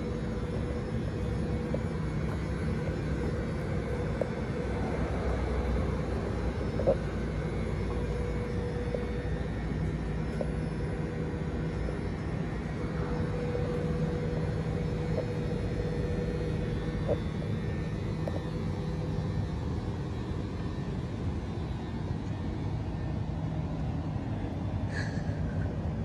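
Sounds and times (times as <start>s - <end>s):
electric railcar humming: 0.0s - 26.0s.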